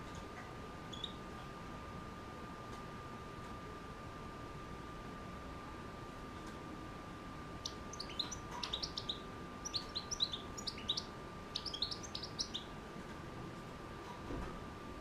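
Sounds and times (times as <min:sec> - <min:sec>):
goldfinch twittering: 0:07.6 - 0:12.7.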